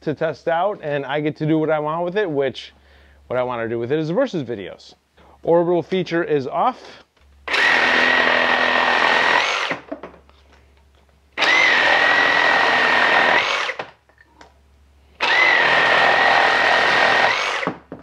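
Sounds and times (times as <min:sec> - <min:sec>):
reciprocating saw cutting wood: 0:07.5 - 0:09.8, 0:11.4 - 0:13.8, 0:15.2 - 0:17.7.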